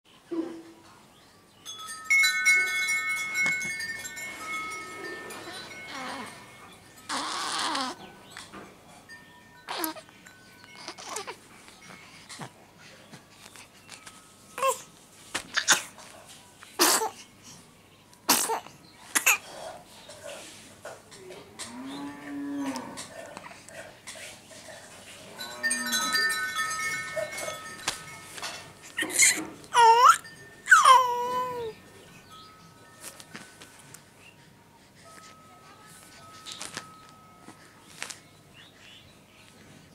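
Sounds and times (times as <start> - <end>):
chime tones ringing: 1.6 - 12.2, 25.3 - 38.8.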